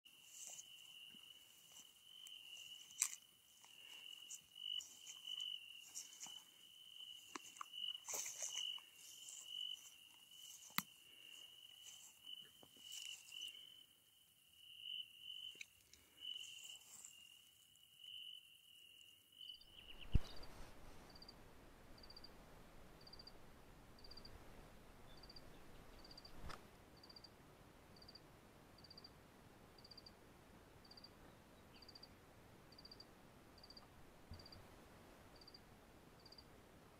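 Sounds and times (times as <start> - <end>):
footsteps through tall grass: 0.1 - 13.7, 16.2 - 17.4
insect trilling: 0.2 - 13.8.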